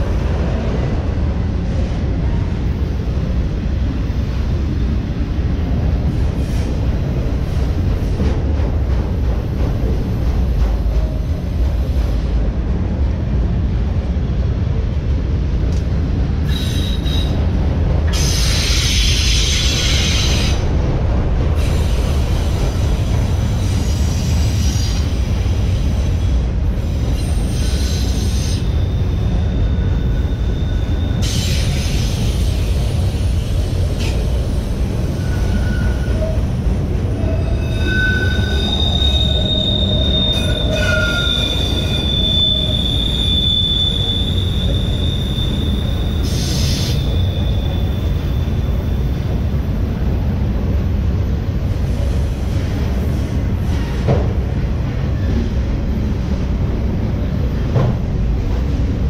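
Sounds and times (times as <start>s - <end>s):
freight train wheels rumbling on rail: 0.0s - 59.0s
wheels squealing: 37.1s - 49.1s.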